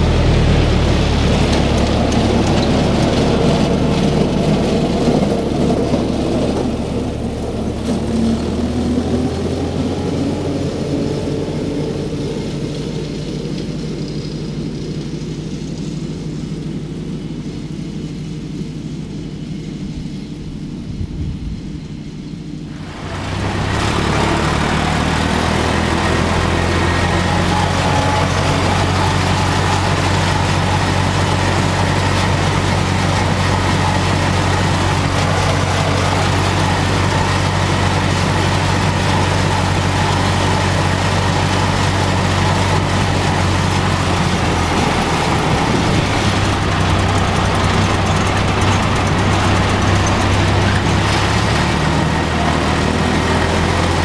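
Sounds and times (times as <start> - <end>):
tractor diesel engine: 0.0 - 54.0
hiss of mower cutting: 21.8 - 54.0.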